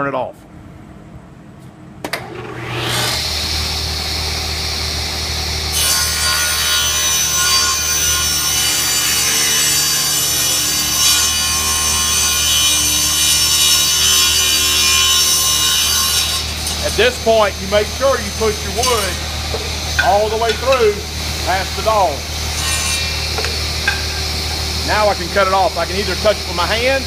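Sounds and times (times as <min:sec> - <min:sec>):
table saw motor whine: 0:02.2 - 0:27.0
saw blade cutting wood: 0:05.7 - 0:27.0.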